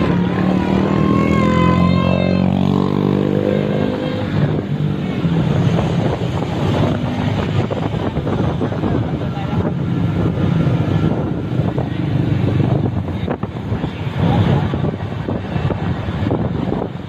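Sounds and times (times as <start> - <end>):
motorbikes running: 0.0 - 17.0
wavering horn tone: 0.7 - 4.5.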